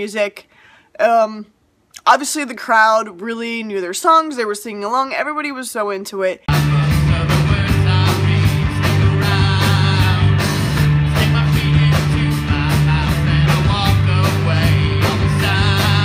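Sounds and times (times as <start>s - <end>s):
bass guitar: 6.5s - 16.0s
drum beat: 6.5s - 16.0s
electric guitar: 6.5s - 16.0s
man singing: 6.5s - 16.0s.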